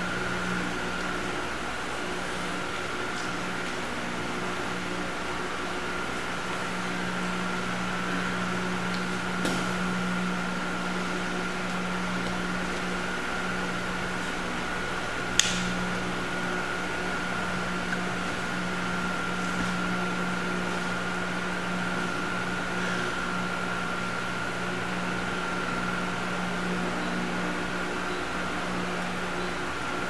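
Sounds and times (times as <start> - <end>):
electric fan humming: 0.0 - 30.0
sharp click: 15.3 - 15.8.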